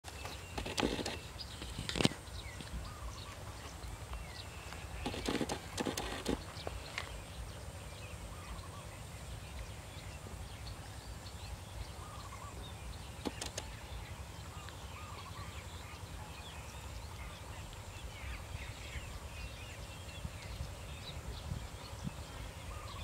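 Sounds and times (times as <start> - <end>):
small birds chirping: 0.0 - 23.0
sharp clicks: 0.5 - 2.2, 5.0 - 6.5, 13.2 - 13.8
low wind rumble: 0.5 - 23.0.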